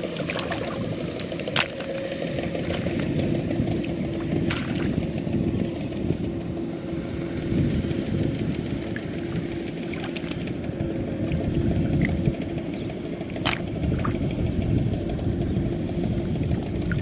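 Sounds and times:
low rumble with hum: 0:00.0 - 0:17.0
light splashes in water: 0:03.8 - 0:05.0, 0:08.9 - 0:10.5.

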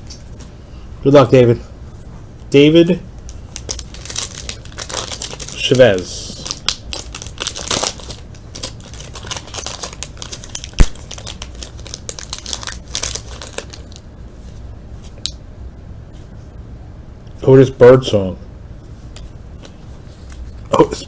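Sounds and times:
foil wrapper crinkling: 0:03.3 - 0:14.0.

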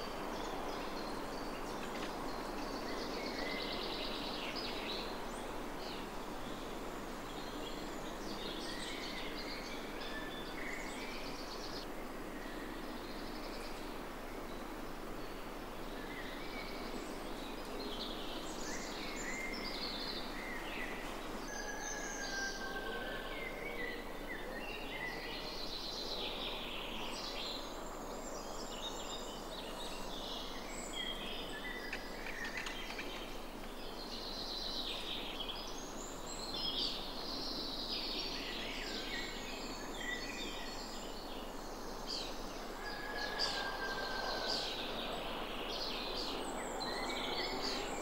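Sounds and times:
outdoor background hiss: 0:00.0 - 0:48.0
birds singing and calling: 0:16.1 - 0:48.0.

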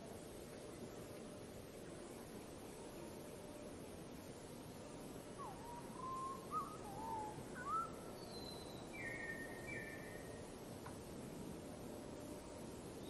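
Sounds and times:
steady background noise: 0:00.0 - 0:13.0
songbird whistling: 0:05.4 - 0:10.3.

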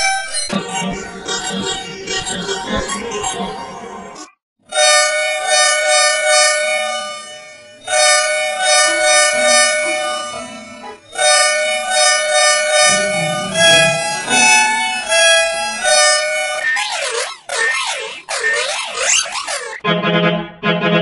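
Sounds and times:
reedy two-tone bus horn: 0:04.7 - 0:16.6, 0:19.8 - 0:21.0
musical horn short notes: 0:07.9 - 0:16.6.

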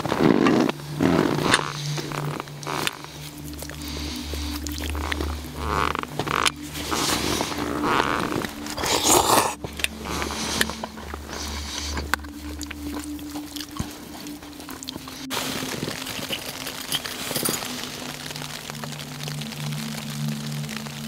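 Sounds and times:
person chewing food: 0:00.0 - 0:18.8
low steady hum: 0:00.0 - 0:21.0.

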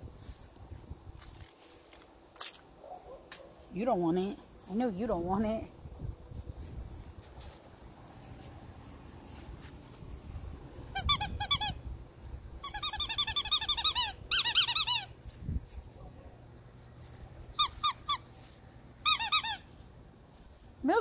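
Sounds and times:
squeaky dog toy squeaks: 0:10.9 - 0:11.8, 0:12.6 - 0:15.1, 0:17.6 - 0:18.3, 0:19.0 - 0:19.7.

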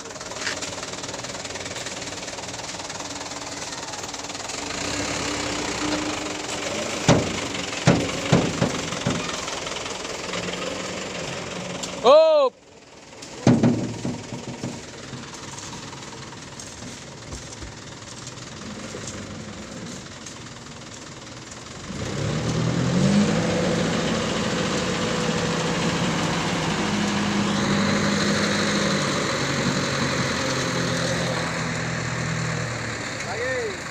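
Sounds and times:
vehicle engine revving: 0:00.0 - 0:12.1, 0:13.2 - 0:33.9.

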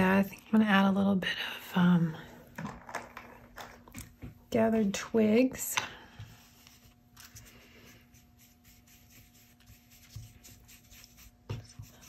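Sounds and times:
ink blending tool rubbing paper: 0:06.7 - 0:12.0.

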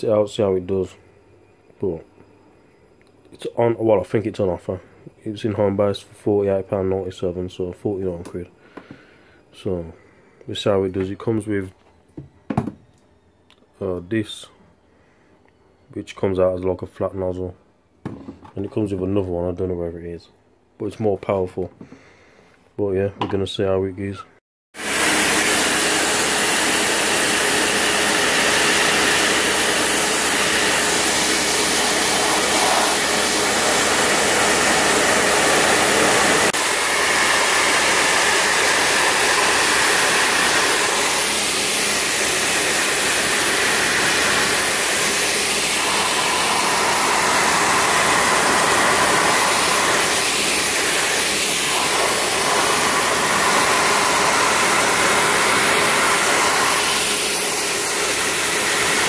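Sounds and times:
pressure washer motor droning: 0:24.8 - 0:59.0.

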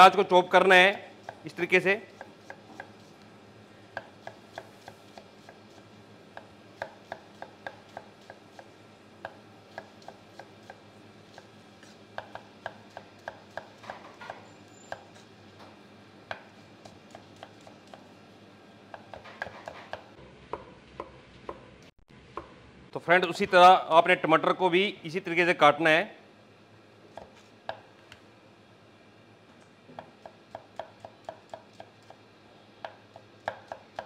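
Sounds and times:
knife chopping onion on wooden board: 0:01.2 - 0:03.2, 0:03.9 - 0:15.3, 0:16.3 - 0:18.1, 0:18.9 - 0:22.6, 0:27.1 - 0:27.9, 0:29.9 - 0:32.2, 0:32.8 - 0:34.0.

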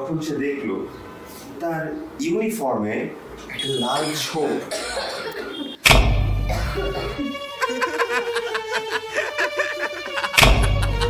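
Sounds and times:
tense music with drone: 0:05.8 - 0:11.0
laughter: 0:06.7 - 0:11.0
rapid clicking percussion: 0:10.4 - 0:10.8.

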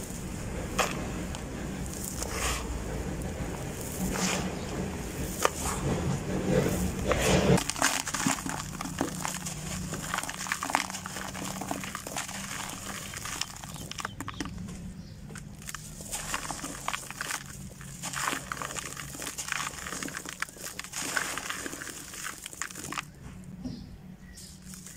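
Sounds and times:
gravel pouring into bucket: 0:00.0 - 0:02.7, 0:03.8 - 0:05.8, 0:06.6 - 0:14.6, 0:15.5 - 0:23.2, 0:24.5 - 0:24.9
dirt crushed between hands: 0:00.7 - 0:02.7, 0:03.8 - 0:14.7, 0:15.3 - 0:23.3, 0:24.2 - 0:24.9
grit trickling into bowl: 0:06.6 - 0:14.6, 0:15.4 - 0:23.2, 0:24.4 - 0:24.9.

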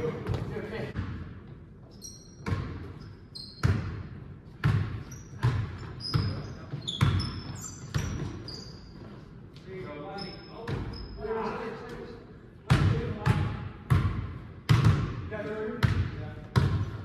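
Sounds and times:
sneaker squeaks on hardwood: 0:01.9 - 0:03.9, 0:05.0 - 0:09.3, 0:10.1 - 0:11.2
basketball bouncing on hardwood floor: 0:04.6 - 0:06.4, 0:12.7 - 0:15.2, 0:15.8 - 0:17.0.

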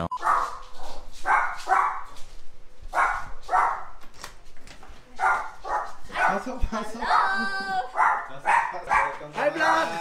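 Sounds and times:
dog barking: 0:00.1 - 0:02.2, 0:02.9 - 0:04.0, 0:05.2 - 0:09.4.

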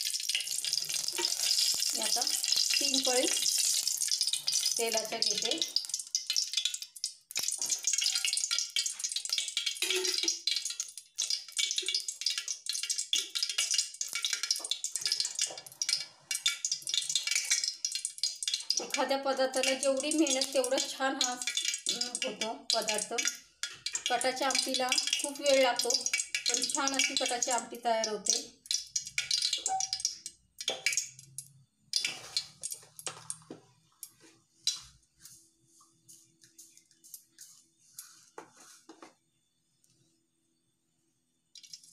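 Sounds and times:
cooking oil crackling and spitting: 0:00.0 - 0:35.3, 0:36.1 - 0:38.9, 0:41.5 - 0:41.9.

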